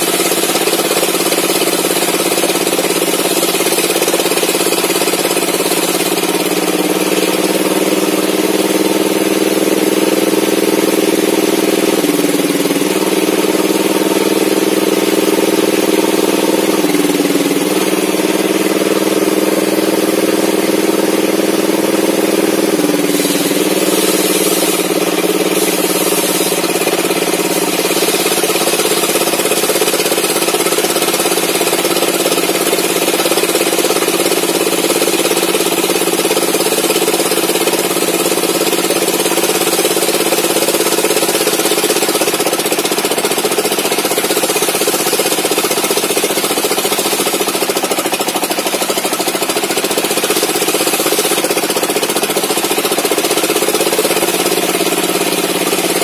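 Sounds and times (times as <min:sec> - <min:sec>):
table saw ripping wood: 0:23.0 - 0:31.4.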